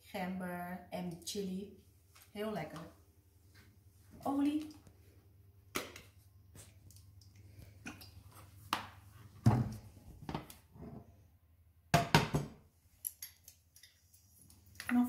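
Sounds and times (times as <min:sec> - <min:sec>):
kitchenware knocks and clunks: 0:09.4 - 0:11.0, 0:11.9 - 0:12.6.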